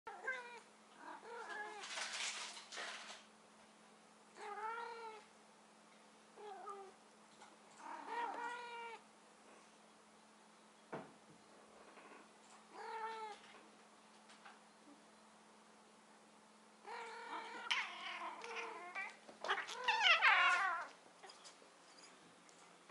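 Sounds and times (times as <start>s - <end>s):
cat meowing: 16.9s - 20.9s.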